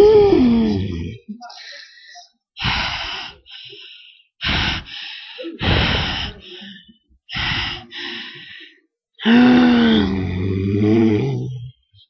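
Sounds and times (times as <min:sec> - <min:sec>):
woman gasping: 0:01.6 - 0:10.1.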